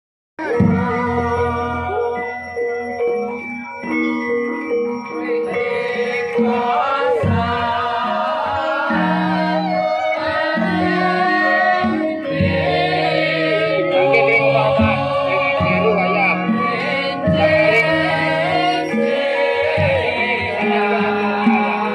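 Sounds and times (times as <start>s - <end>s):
gamelan gongs and metallophones: 0.4s - 21.9s
woman singing ornamented melody: 5.1s - 21.9s.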